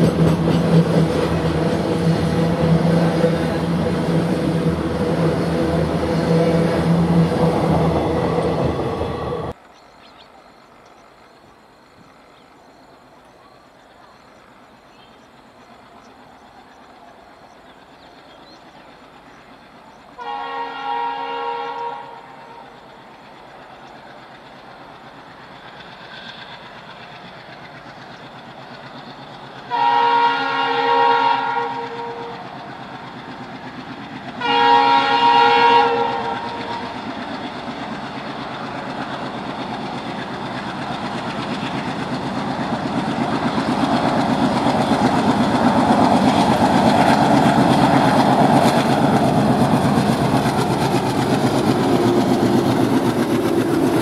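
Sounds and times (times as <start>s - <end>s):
diesel engines rumbling: 0.0s - 9.6s
train wheels on rails: 0.0s - 54.0s
train horn blasts: 1.2s - 9.5s, 20.2s - 22.8s, 29.6s - 32.5s, 34.4s - 37.0s.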